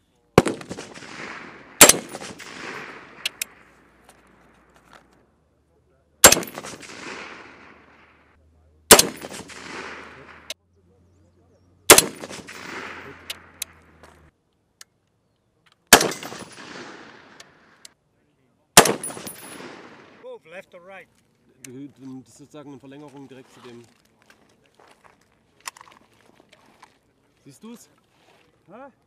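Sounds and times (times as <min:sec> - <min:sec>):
rifle shots with echo: 0:00.4 - 0:04.4, 0:06.2 - 0:08.3, 0:08.9 - 0:10.6, 0:11.9 - 0:13.8, 0:15.9 - 0:17.8, 0:18.8 - 0:20.2.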